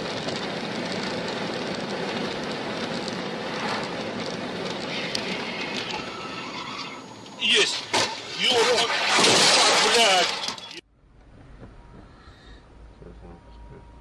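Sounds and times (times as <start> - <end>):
car road and wind noise: 0.0 - 7.4.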